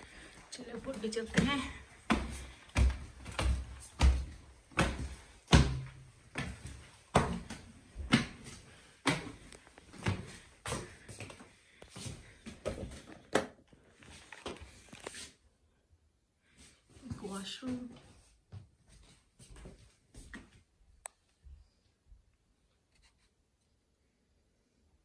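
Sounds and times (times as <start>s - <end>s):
footsteps on wooden stairs: 0.0s - 13.5s.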